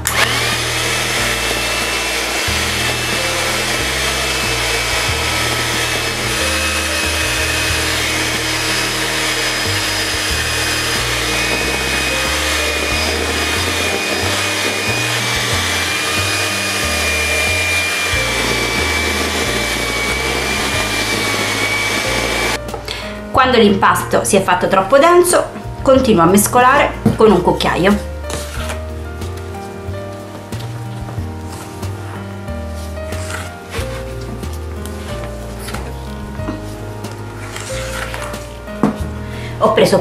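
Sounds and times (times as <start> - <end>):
electric hand mixer whining: 0.0 - 22.8, 30.6 - 39.2
background music: 0.0 - 40.0.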